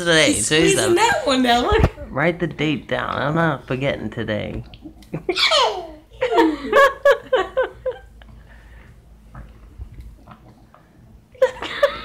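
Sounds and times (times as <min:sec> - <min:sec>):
people laughing: 0:06.2 - 0:08.1, 0:11.4 - 0:12.0.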